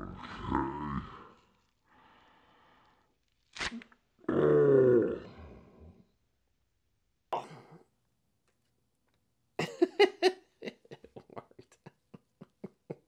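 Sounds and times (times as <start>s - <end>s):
man laughing: 9.6s - 13.0s.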